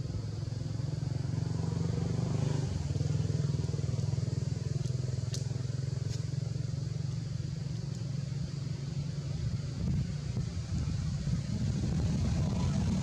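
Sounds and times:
low engine rumble: 0:00.0 - 0:13.0
faint ticks: 0:07.8 - 0:08.1.

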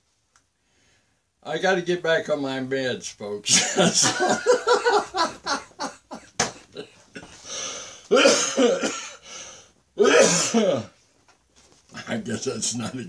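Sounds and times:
man laughing: 0:03.5 - 0:07.3
man coughing: 0:08.1 - 0:09.2, 0:10.0 - 0:10.9.

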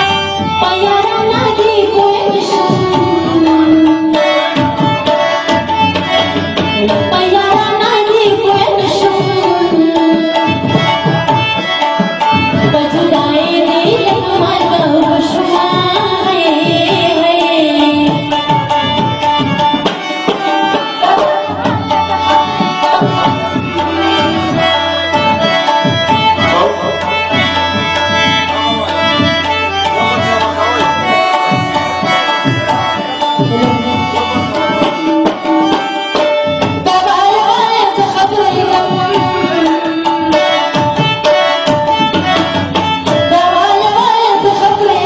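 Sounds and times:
held melody notes: 0:00.0 - 0:45.0
tabla rhythm: 0:00.0 - 0:45.0
person singing: 0:26.4 - 0:35.8.

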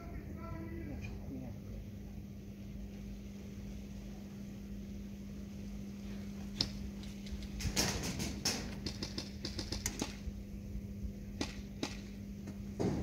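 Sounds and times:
airsoft gun shots: 0:07.6 - 0:10.2, 0:11.4 - 0:12.2.

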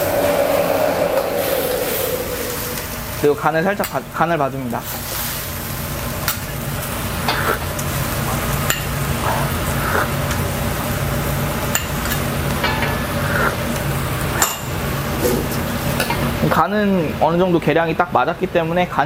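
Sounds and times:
steady low hum: 0:00.0 - 0:04.8.

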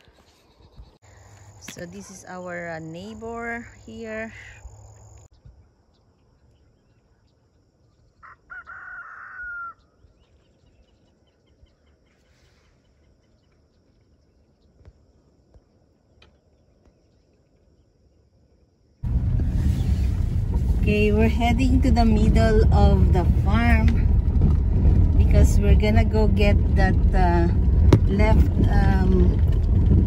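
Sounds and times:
rooster crowing: 0:08.2 - 0:09.9.

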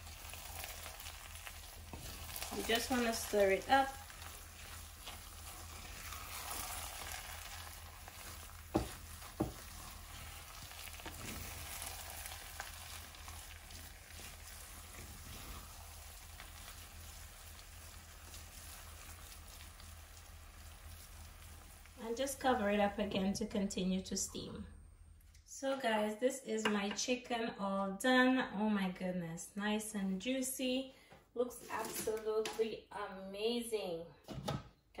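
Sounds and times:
rice sizzling: 0:00.0 - 0:23.4
wooden spoon scraping metal pot: 0:00.2 - 0:19.8, 0:31.6 - 0:32.5.

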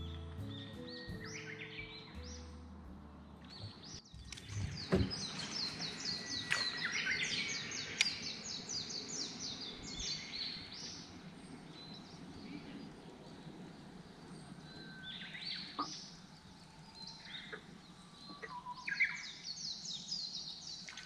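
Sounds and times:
bird singing high notes: 0:00.0 - 0:02.7, 0:03.4 - 0:11.1
thump: 0:04.6 - 0:05.3
sharp click: 0:08.0 - 0:08.2.

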